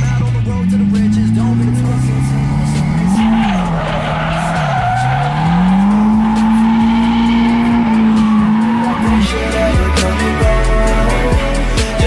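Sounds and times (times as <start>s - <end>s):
car engine revving: 0.0s - 12.0s
tyres squealing: 0.8s - 10.2s.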